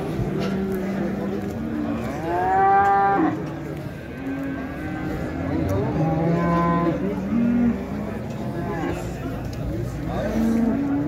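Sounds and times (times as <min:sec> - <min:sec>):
cattle mooing: 0:01.8 - 0:09.1.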